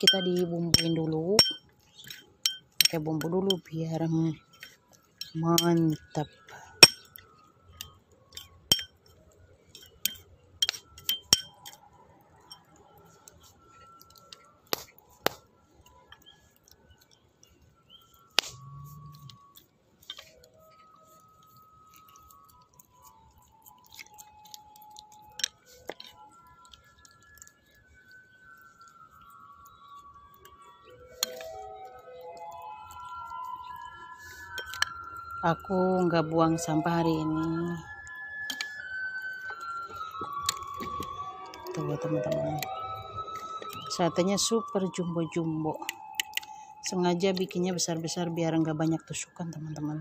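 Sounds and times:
metal spoon clinking against bowl: 0.0 - 3.8, 4.4 - 11.8.

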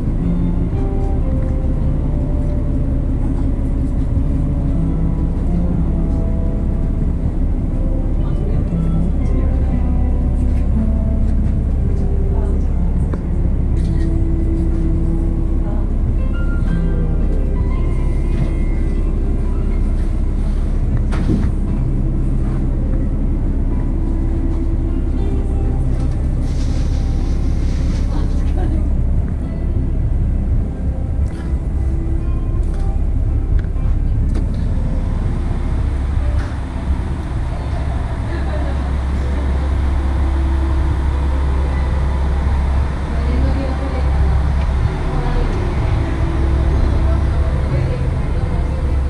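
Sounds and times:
diesel engine idling: 0.0 - 49.0.

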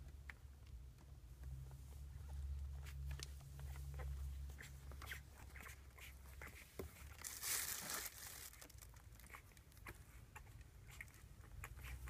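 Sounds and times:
puppies rustling on fleece: 1.0 - 12.0.

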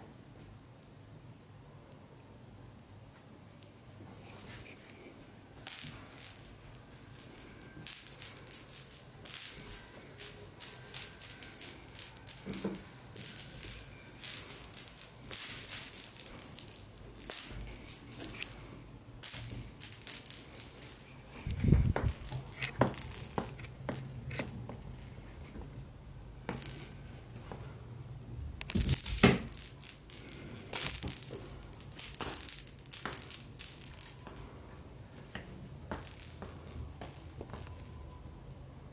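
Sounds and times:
plastic toy ball rattling: 5.6 - 21.2, 22.0 - 25.2, 26.5 - 27.0, 28.7 - 34.4, 35.9 - 38.0.

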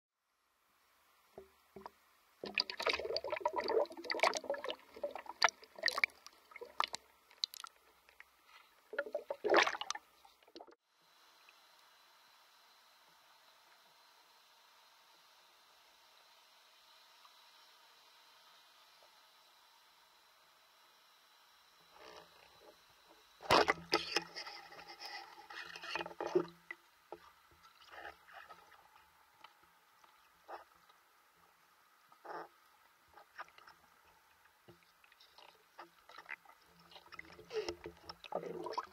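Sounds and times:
muffled underwater water sloshing: 1.4 - 10.8, 32.2 - 38.9.

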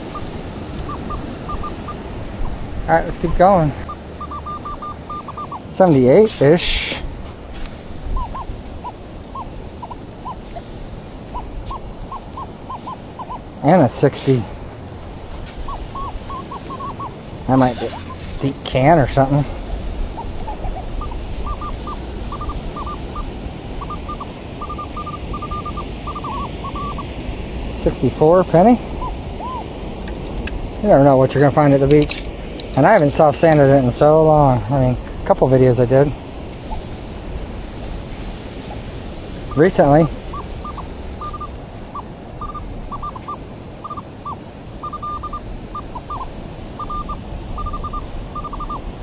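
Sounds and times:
metal detector high beeps: 0.0 - 2.0, 3.3 - 5.9, 15.7 - 18.3, 20.2 - 27.2, 39.5 - 48.8
background rush: 0.0 - 49.0.

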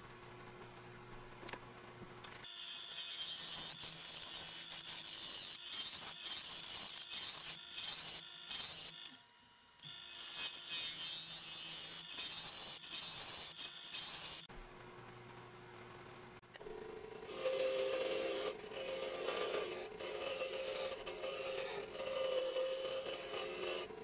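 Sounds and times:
lathe motor hum: 16.7 - 24.0
lathe tool hissing scrape: 17.3 - 24.0.

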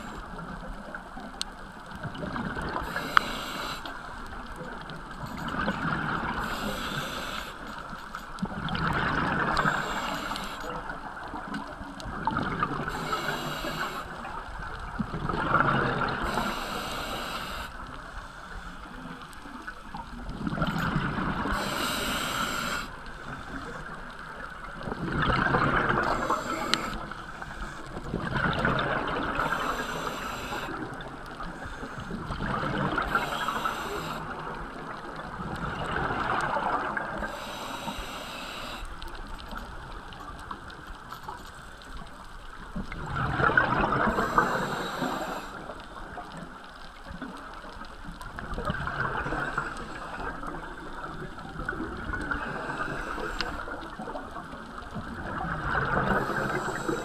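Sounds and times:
gurgling exhaled bubbles: 2.0 - 3.2, 8.4 - 17.7, 19.9 - 37.3, 42.7 - 46.3, 48.2 - 57.0
regulator inhale hiss: 2.7 - 4.3, 6.3 - 8.2, 9.4 - 10.9, 12.9 - 14.4, 16.1 - 19.2, 21.4 - 23.9, 25.9 - 28.0, 29.2 - 32.2, 32.9 - 34.8, 37.1 - 39.1, 44.0 - 46.4, 52.2 - 53.9, 55.9 - 57.0.

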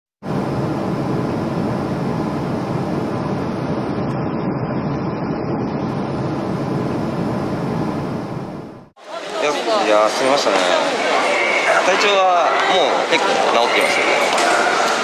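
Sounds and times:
jet airliner rumble: 0.2 - 8.9.

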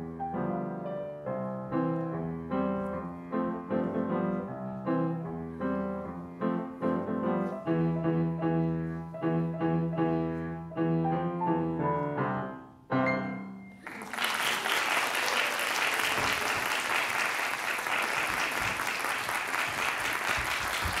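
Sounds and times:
upright piano notes climbing: 0.0 - 14.0
audience applauding: 13.8 - 21.0.

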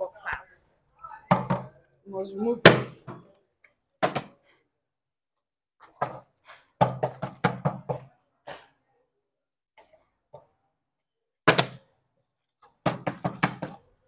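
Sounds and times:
plastic bottle knocking on wood: 1.3 - 1.7.

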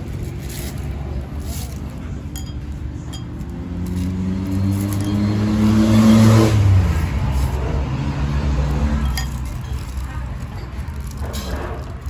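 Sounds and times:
vehicle engine driving past: 3.6 - 9.5.

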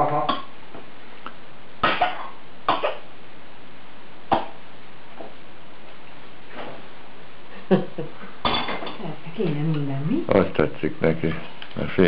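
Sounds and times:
coughing: 1.8 - 3.1.

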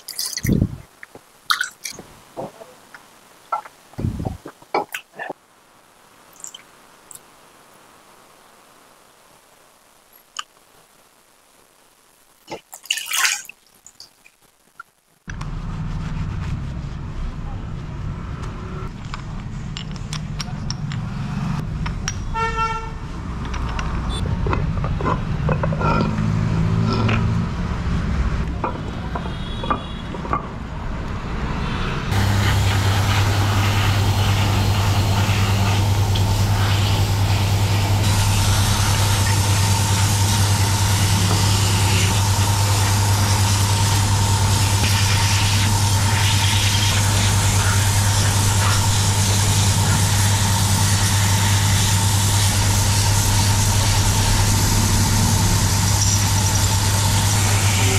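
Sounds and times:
road traffic: 15.3 - 57.9
vehicle horn toot: 22.3 - 23.0, 29.2 - 30.1
loud engine hum: 31.3 - 57.9.

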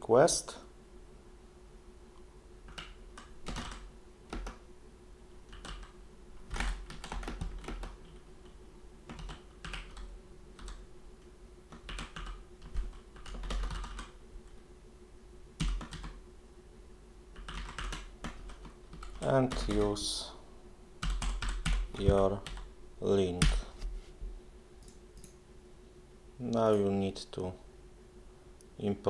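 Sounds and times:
computer keyboard typing: 2.7 - 4.6, 5.5 - 10.8, 11.7 - 14.2, 15.6 - 16.2, 17.3 - 20.0, 21.0 - 22.7.

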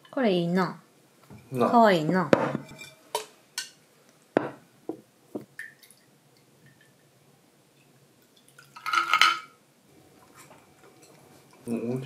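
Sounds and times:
ice clinking in glass carafe: 8.8 - 9.5.

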